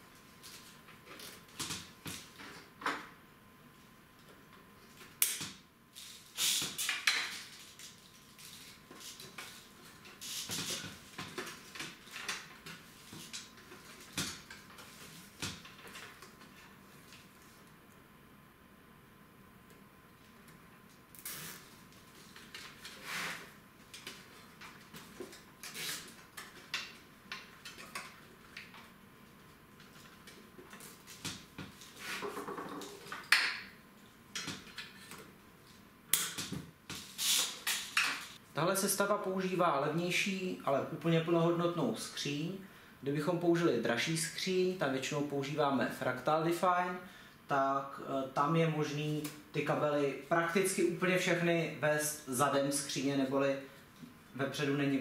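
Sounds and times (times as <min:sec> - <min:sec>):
cables rustling and scraping: 0:06.0 - 0:17.7, 0:21.2 - 0:33.4.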